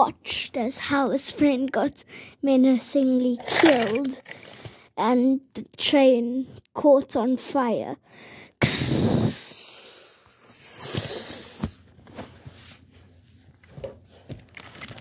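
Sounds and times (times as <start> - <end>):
loud hissing rush: 8.6 - 11.7.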